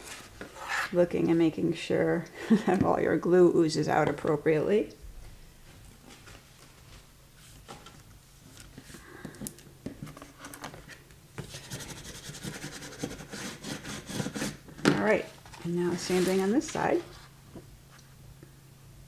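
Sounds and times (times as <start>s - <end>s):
hand rubbing paper: 11.4s - 14.6s, 15.9s - 17.4s.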